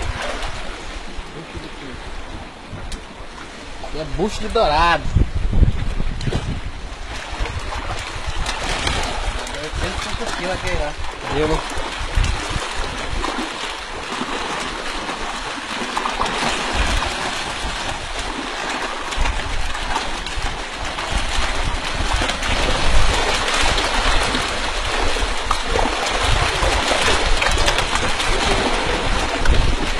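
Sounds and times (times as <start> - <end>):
fish thrashing in water: 6.2 - 29.9.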